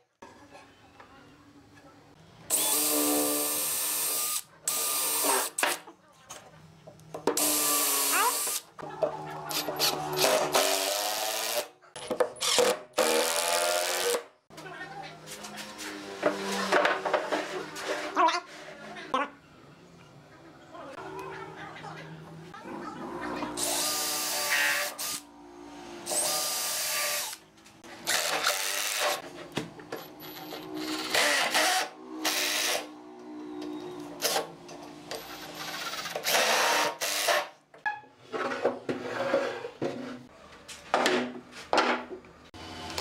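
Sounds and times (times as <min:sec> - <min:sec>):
impact driver driving screws: 0:12.4 - 0:14.2.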